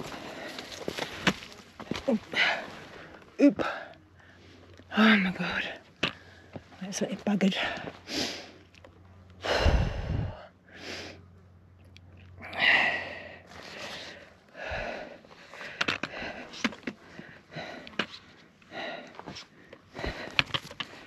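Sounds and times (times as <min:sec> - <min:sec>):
person breathing hard: 0:09.4 - 0:11.3, 0:12.4 - 0:21.0.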